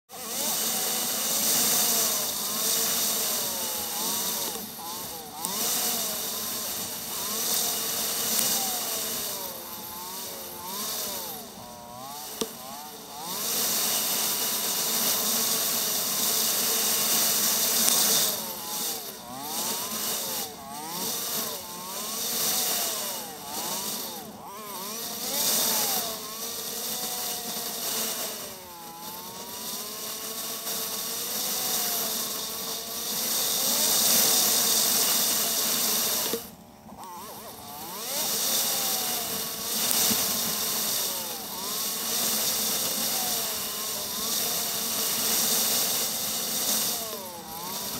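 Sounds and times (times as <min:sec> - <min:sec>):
motorcycle engine running: 0:00.1 - 0:47.9.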